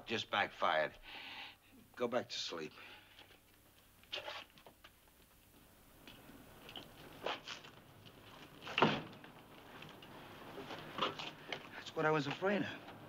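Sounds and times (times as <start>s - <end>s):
quiet footsteps: 3.0s - 13.0s
door thump: 8.8s - 9.1s.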